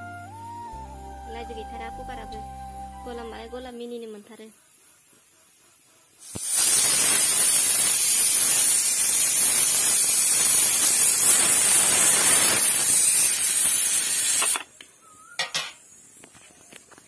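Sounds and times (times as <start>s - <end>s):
pressure cooker steam hissing: 4.2s - 14.8s.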